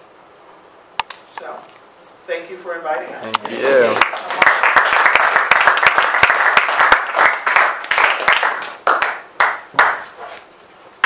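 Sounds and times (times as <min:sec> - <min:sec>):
audience applauding: 0:03.6 - 0:10.2.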